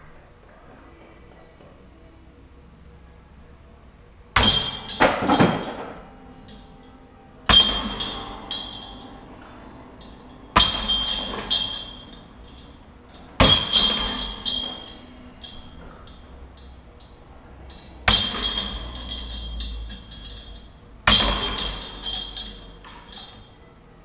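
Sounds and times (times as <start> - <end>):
discs hitting metal chains: 4.4 - 23.6.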